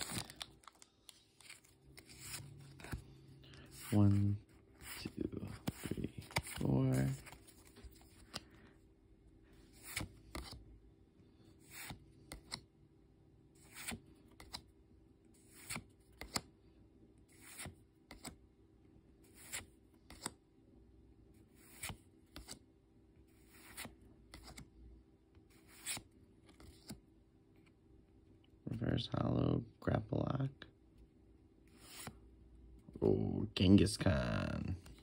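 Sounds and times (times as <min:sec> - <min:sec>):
cards swishing: 0:00.0 - 0:08.4, 0:25.5 - 0:27.0.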